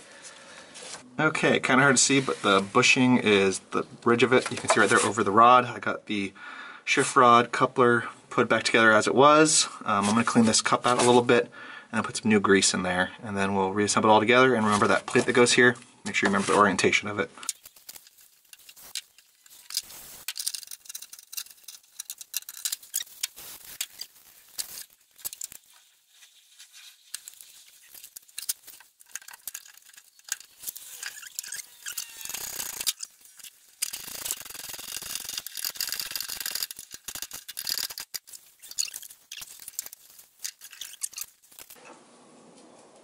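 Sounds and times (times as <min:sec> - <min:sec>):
tools clicking and scraping parts: 0:17.4 - 0:25.8, 0:27.1 - 0:41.8.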